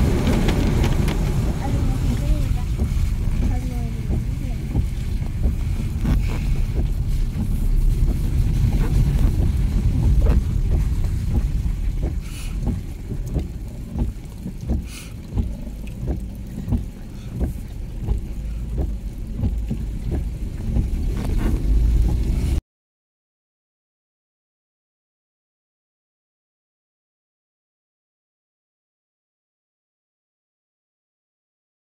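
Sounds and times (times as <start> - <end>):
car interior road rumble: 0.0 - 22.6
light ticks: 2.1 - 22.5.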